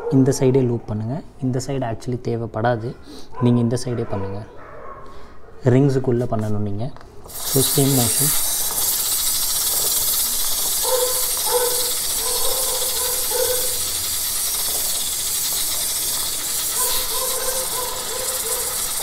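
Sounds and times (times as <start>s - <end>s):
aerosol spray hissing: 7.3s - 19.0s.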